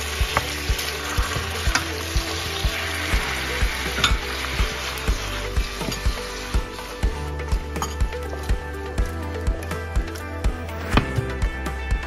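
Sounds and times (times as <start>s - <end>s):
cabbage sizzling in hot pan: 0.0s - 7.8s
background music with steady beat: 0.0s - 12.0s.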